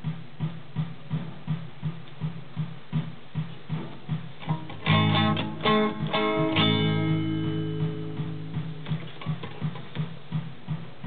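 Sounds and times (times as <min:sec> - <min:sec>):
guitar chords strummed with echo: 0:04.4 - 0:09.7.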